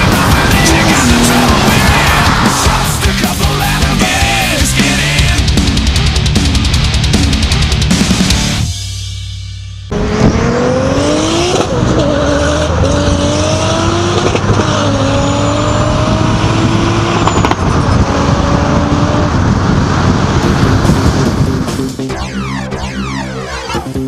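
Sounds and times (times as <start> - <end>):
car engine accelerating: 0.0 - 7.5, 9.9 - 21.7
wind and road noise: 0.0 - 8.3, 9.9 - 24.0.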